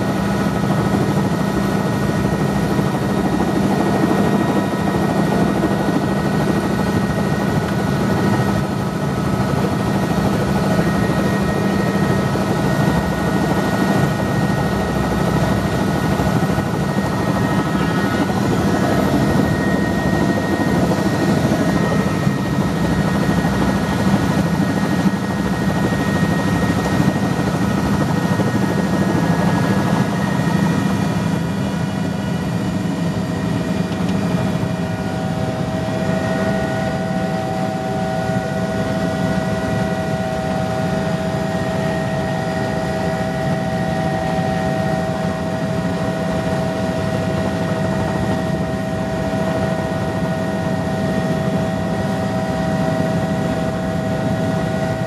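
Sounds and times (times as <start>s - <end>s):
helicopter engine and rotor drone: 0.0s - 55.0s
high whining tones: 13.6s - 23.6s.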